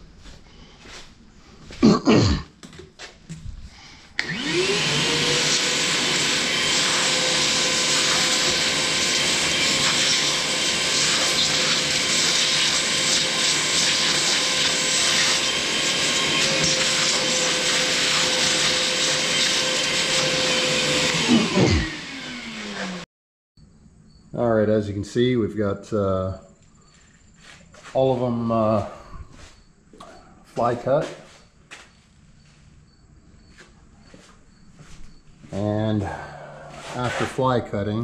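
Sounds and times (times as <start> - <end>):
shop vacuum motor whining: 4.2 - 23.1.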